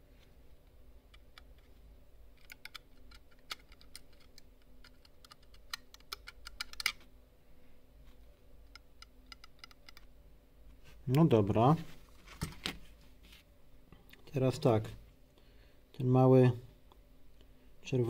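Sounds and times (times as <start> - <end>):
computer mouse clicks and ticks: 2.4 - 7.0, 8.7 - 10.1.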